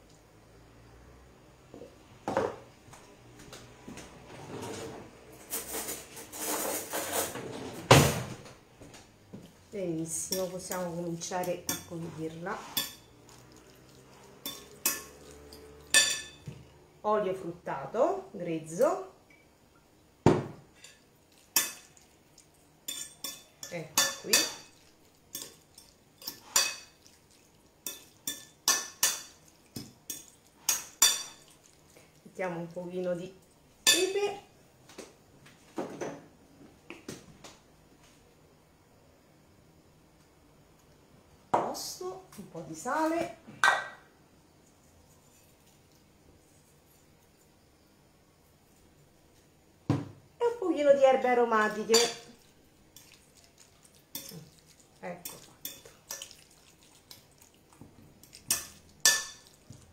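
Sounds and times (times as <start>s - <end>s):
utensil clinking on ceramic plate: 11.4s - 12.0s, 12.6s - 16.5s, 20.8s - 22.1s, 22.9s - 27.2s, 27.8s - 31.6s, 51.8s - 52.4s, 53.0s - 57.3s, 58.2s - 59.8s
dishes and utensils clattering: 11.6s - 16.5s, 58.2s - 59.8s.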